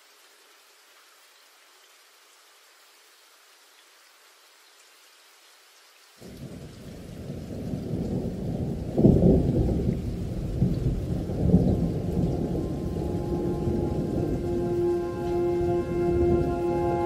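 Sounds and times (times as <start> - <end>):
thunder rumbling: 6.2 - 17.0
faint musical tones: 12.2 - 17.0.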